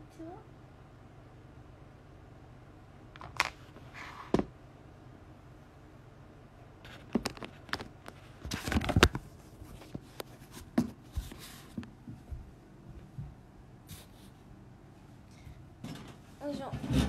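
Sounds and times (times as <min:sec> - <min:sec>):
short rustling scrapes: 0:03.8 - 0:04.4.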